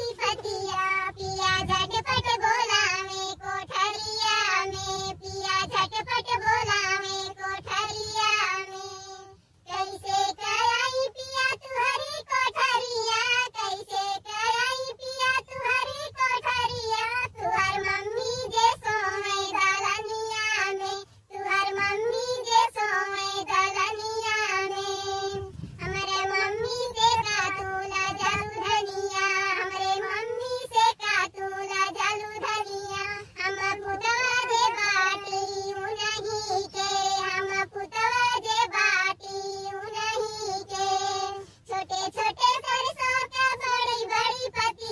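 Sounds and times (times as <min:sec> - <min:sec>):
high cartoon voice singing folk song: 0:00.0 - 0:44.9.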